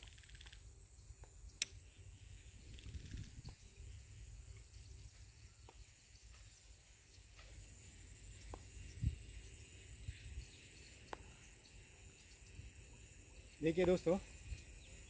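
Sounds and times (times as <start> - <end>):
high-pitched insect buzz: 0.0 - 15.0
faint clicks: 1.2 - 1.8
wind rumble on microphone: 2.4 - 4.0, 8.8 - 10.7.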